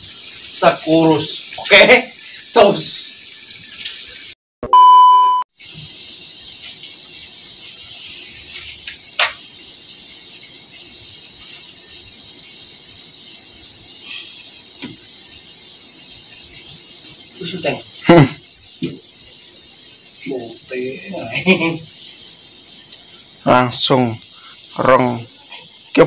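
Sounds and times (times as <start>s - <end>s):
steady high hiss: 0.0s - 26.0s
electronic beep: 4.6s - 5.4s.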